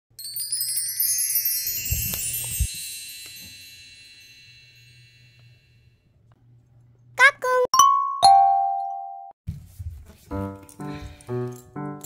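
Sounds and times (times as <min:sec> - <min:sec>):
shimmering metal chimes: 0:00.2 - 0:06.0.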